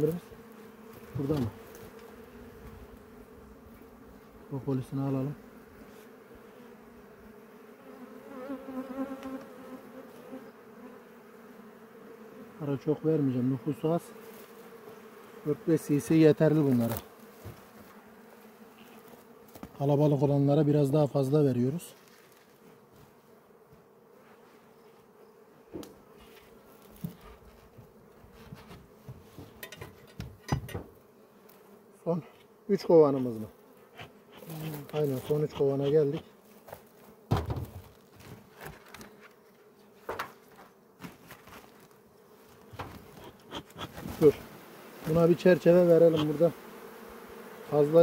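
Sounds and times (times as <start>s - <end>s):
honeybees buzzing: 0.0s - 48.0s
sharp knocks and clicks: 29.6s - 30.9s.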